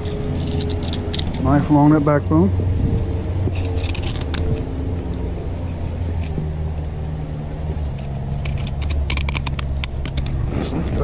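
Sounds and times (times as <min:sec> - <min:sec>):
low motor hum: 0:00.0 - 0:11.0
knife clicking and scraping fish: 0:07.9 - 0:10.4.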